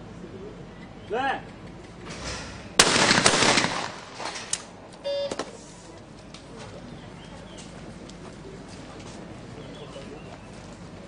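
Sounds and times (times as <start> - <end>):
shotgun shots echoing: 2.8 - 4.7
short beep: 5.0 - 5.4.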